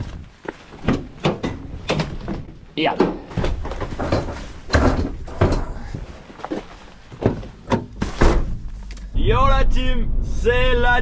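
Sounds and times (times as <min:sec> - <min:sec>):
knocks and thuds: 0:00.8 - 0:05.9, 0:07.1 - 0:08.8.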